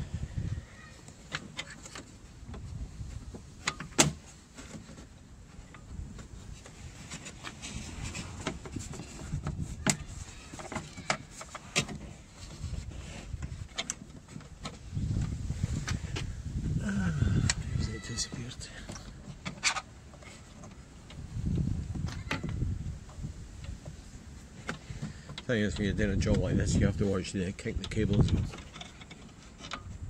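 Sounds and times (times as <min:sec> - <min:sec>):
clicks and knocks of car parts: 0:03.3 - 0:06.3, 0:08.4 - 0:12.6.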